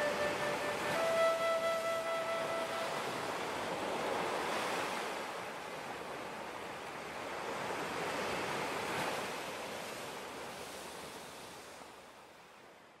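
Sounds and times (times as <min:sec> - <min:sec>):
rushing surf-like noise: 0:00.0 - 0:06.1.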